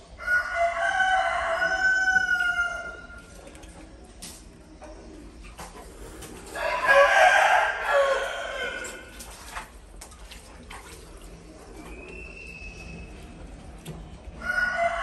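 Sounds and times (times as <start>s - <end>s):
rooster crowing: 0.2s - 3.1s, 6.6s - 9.2s, 14.4s - 15.0s.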